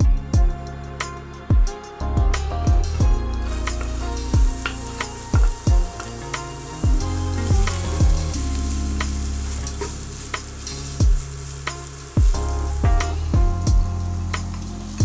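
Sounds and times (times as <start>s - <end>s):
background music with thumping beat: 0.0s - 14.6s
onion sizzling in oil: 3.4s - 15.0s.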